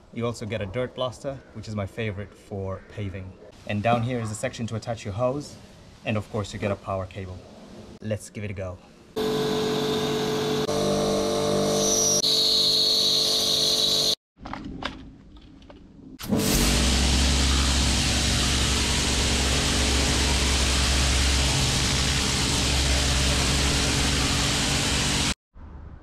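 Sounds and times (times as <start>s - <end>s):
pressure washer motor humming: 9.2s - 14.2s, 16.2s - 25.4s
water jet hissing on paving: 16.4s - 25.4s.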